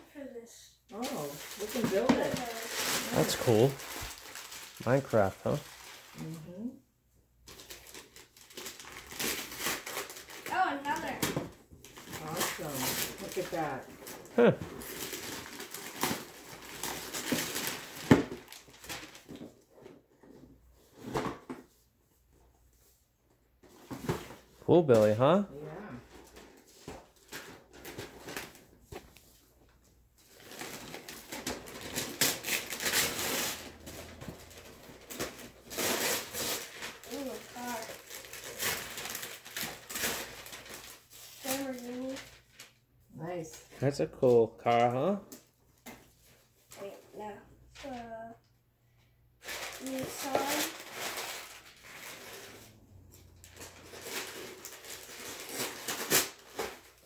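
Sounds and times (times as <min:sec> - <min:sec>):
wrapping paper ripping: 0:01.0 - 0:06.4, 0:07.5 - 0:11.2, 0:11.9 - 0:19.3, 0:30.3 - 0:42.8, 0:49.4 - 0:57.0.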